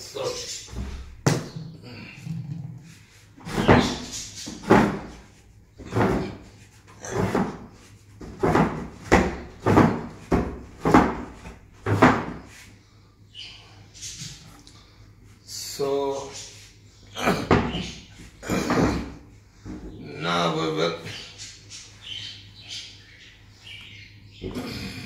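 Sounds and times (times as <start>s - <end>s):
sharp knocks and bangs: 7.1s - 12.4s.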